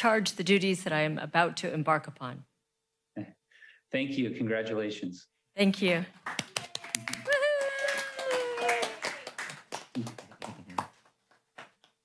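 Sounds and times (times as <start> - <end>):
small group applauding: 6.2 - 11.2.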